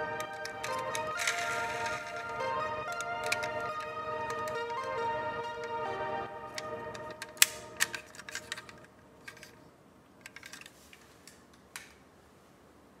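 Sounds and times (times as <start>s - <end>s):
toy car clicks and knocks: 0.2s - 2.3s, 6.6s - 9.6s, 10.2s - 10.7s
toy car rolling on wooden floor: 0.4s - 2.4s.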